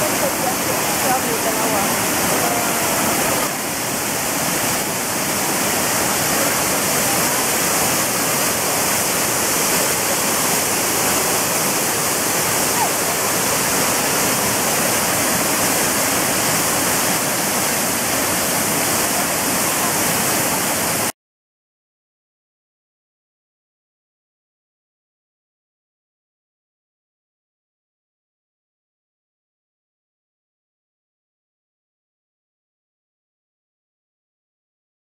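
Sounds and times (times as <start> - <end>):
waterfall rushing: 0.0 - 21.1.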